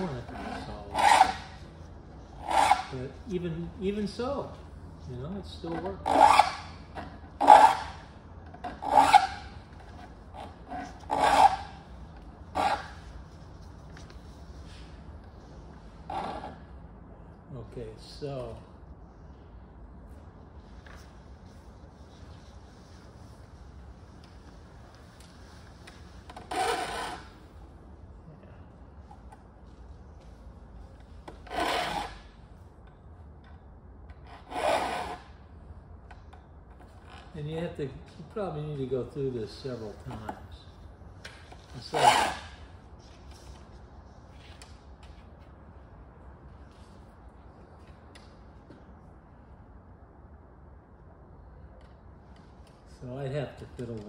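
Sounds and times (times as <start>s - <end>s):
file rasping on saw teeth: 0.3s - 1.6s.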